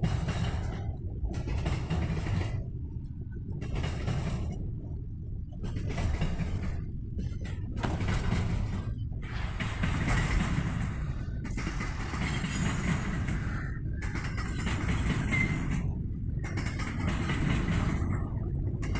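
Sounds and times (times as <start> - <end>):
freight train wagons rolling past: 5.8 - 18.9.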